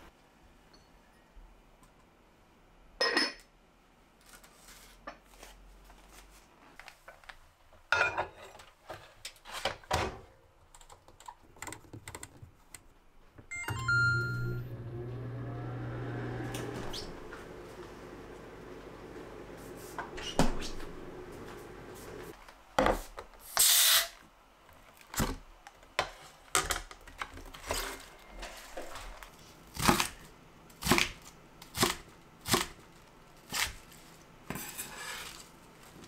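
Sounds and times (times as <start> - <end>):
short beeps: 13.5 - 14.7
microwave humming: 13.5 - 22.3.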